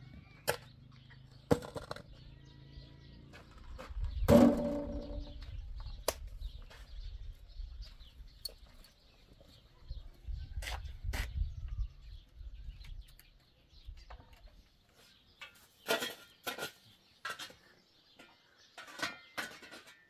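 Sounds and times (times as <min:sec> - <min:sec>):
small birds chirping: 0:00.0 - 0:19.5
sharp knocks: 0:04.3 - 0:05.4.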